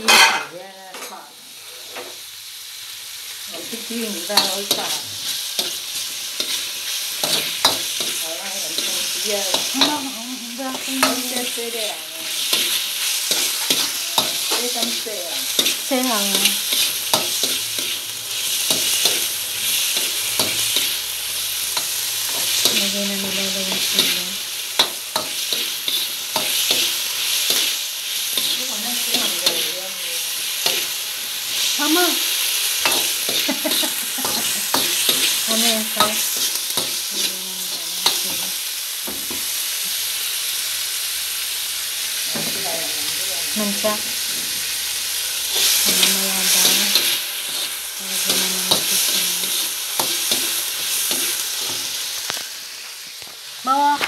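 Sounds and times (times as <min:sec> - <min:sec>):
metal spatula scraping wok: 0:00.0 - 0:02.1, 0:04.0 - 0:32.0, 0:43.7 - 0:52.4
meat sizzling in hot fat: 0:00.0 - 0:54.0.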